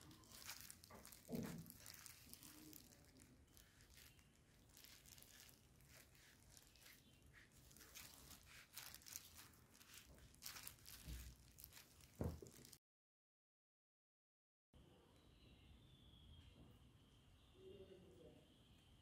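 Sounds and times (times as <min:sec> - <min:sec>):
plastic gloves crinkling: 0:00.0 - 0:12.8.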